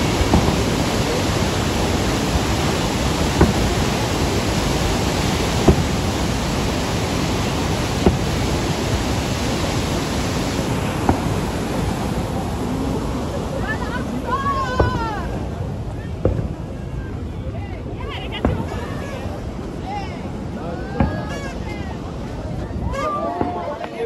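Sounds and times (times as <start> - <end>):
dull firework bangs: 0.0 - 12.1, 16.2 - 16.7, 18.4 - 19.0
waterfall rushing: 0.0 - 24.0.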